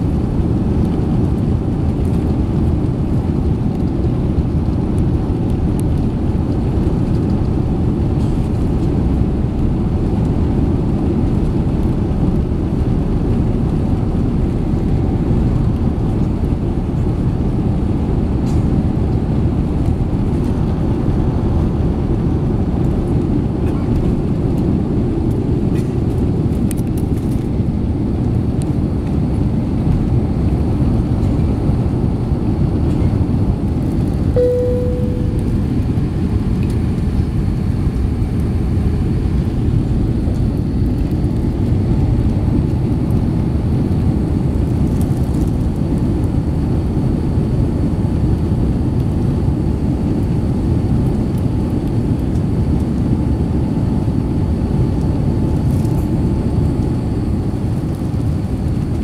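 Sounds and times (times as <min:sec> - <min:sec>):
airplane cabin engine rush: 0:00.0 - 0:59.0
brief tone: 0:34.4 - 0:36.0.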